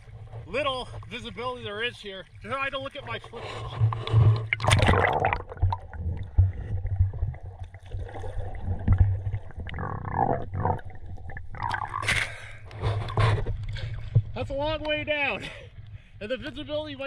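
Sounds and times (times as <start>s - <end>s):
water gurgling: 0.0s - 17.0s
water splash: 1.1s - 14.1s
muffled underwater rumble: 2.3s - 17.0s.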